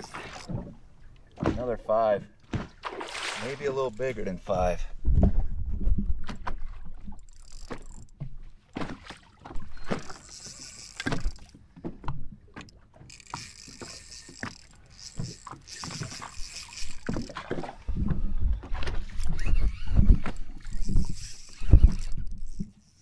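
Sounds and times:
fishing reel whirring: 0.0 - 0.6, 3.8 - 4.4, 7.2 - 8.1, 9.6 - 11.6, 13.0 - 17.9, 19.0 - 23.0
water lapping at hull: 0.0 - 23.0.

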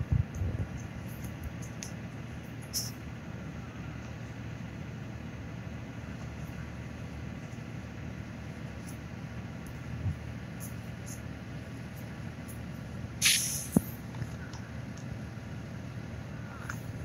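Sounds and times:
car engine idling: 0.0 - 17.0
short sharp click: 13.2 - 13.9.

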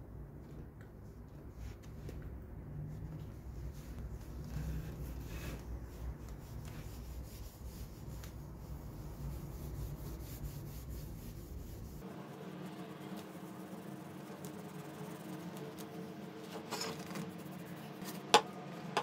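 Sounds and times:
cloth rubbing on wood: 3.3 - 12.1.

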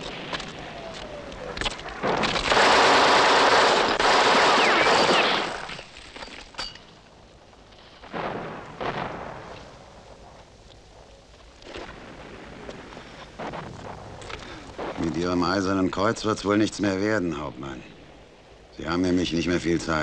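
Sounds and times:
bangs: 0.0 - 7.1
machine-gun burst: 2.0 - 5.9
single gunshots: 2.0 - 5.9.

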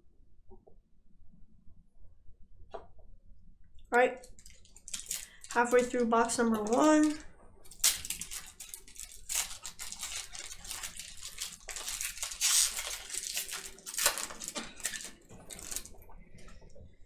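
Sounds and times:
wrapper being torn and crinkled: 4.2 - 16.1.

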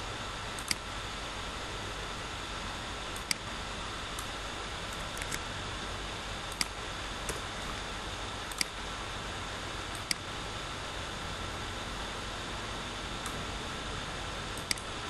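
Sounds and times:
steady hiss: 0.0 - 15.0
computer mouse clicking: 0.6 - 0.8, 3.2 - 3.5, 4.9 - 5.4, 6.5 - 7.5, 8.5 - 8.8, 9.9 - 10.3, 14.6 - 14.9.

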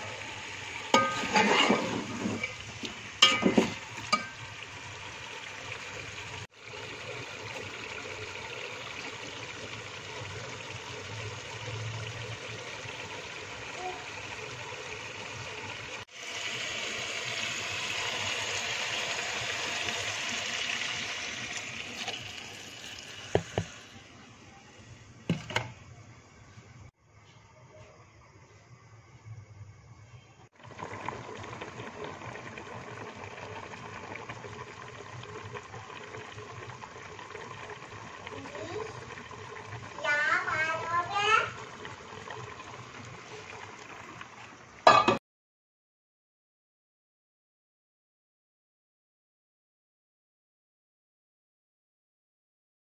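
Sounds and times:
chicken sizzling in oil: 0.0 - 24.1, 30.6 - 45.2
metal spoon clinking on pot: 1.0 - 1.7, 3.2 - 4.4.

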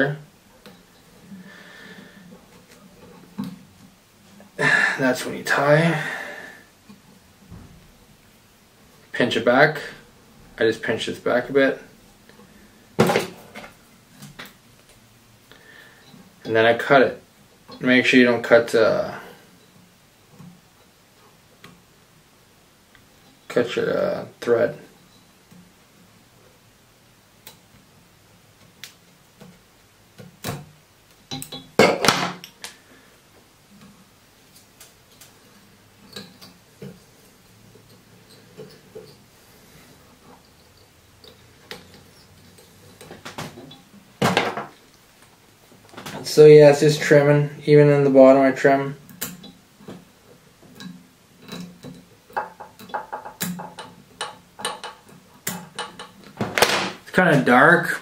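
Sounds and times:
handling noise: 33.4 - 47.2, 49.1 - 57.8.

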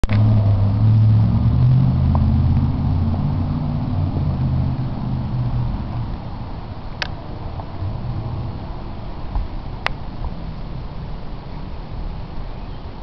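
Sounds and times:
car engine idling: 0.0 - 11.5.

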